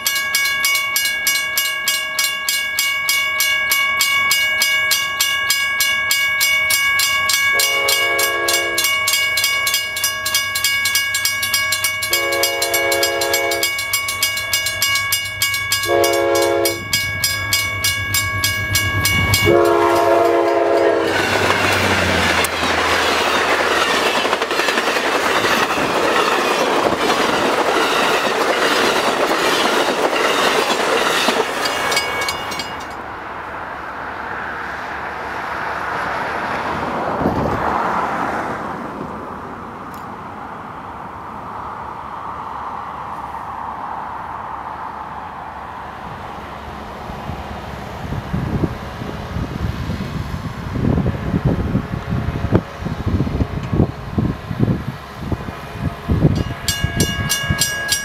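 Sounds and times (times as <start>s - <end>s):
train wheels on rails: 0.0s - 40.6s, 45.0s - 58.0s
locomotive horn blasts: 7.5s - 9.2s, 12.0s - 14.0s, 15.8s - 17.0s, 19.3s - 21.7s.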